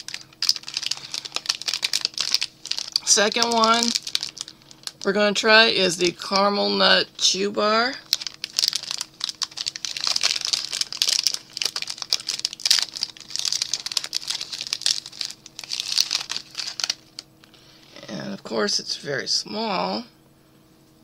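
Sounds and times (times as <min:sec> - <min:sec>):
wrapper crinkling and tearing: 0:00.0 - 0:05.2, 0:08.0 - 0:17.3.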